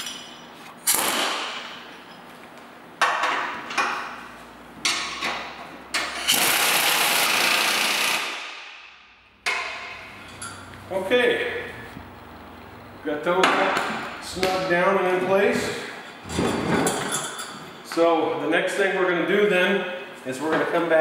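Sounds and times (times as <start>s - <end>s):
pneumatic air wrench: 0.8s - 1.7s, 5.9s - 8.9s.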